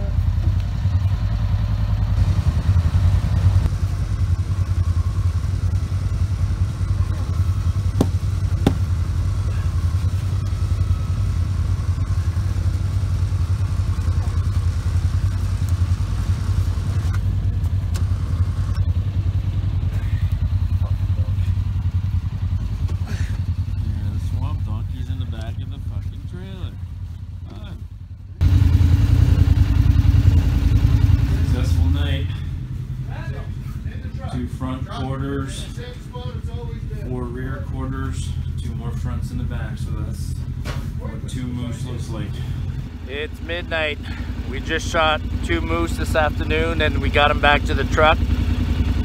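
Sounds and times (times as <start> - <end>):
atv engine idling: 0.0 - 49.0
sharp knocks: 8.0 - 8.9.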